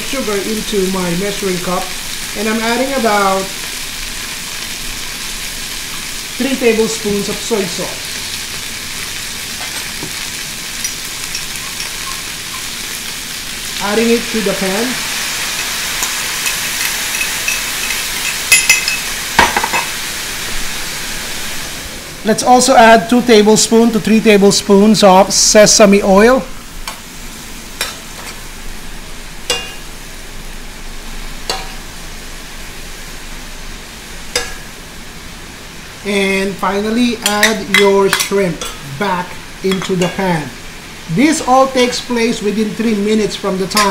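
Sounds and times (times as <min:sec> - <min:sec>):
food sizzling in a wok: 0:00.0 - 0:43.9
metal spoon clinking on pan: 0:10.8 - 0:12.7, 0:16.0 - 0:19.9, 0:29.5 - 0:29.8, 0:31.5 - 0:31.8, 0:34.3 - 0:34.6.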